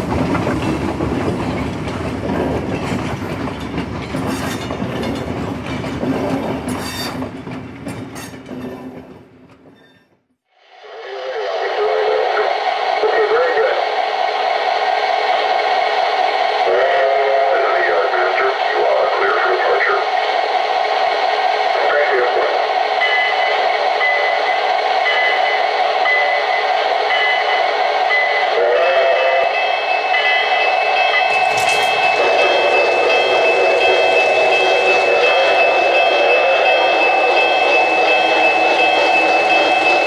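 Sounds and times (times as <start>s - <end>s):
wavering pitched tones: 30.1s - 40.0s.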